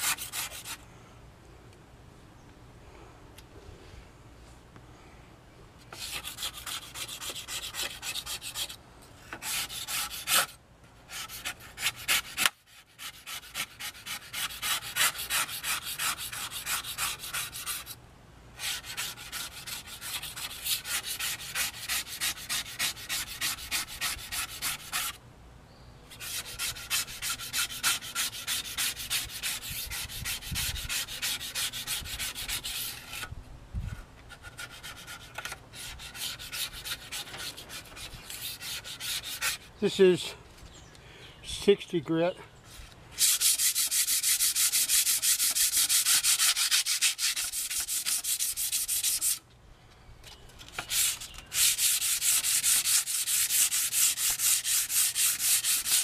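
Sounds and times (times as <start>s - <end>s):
sandpaper scrubbing steel: 5.9s - 18.0s, 18.6s - 25.2s, 26.1s - 33.3s, 34.4s - 39.7s, 43.2s - 49.4s, 50.8s - 56.0s.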